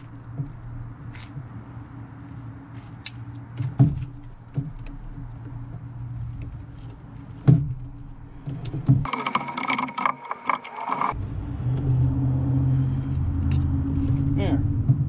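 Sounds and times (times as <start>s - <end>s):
rotary cutting tool whirring: 9.1s - 11.2s.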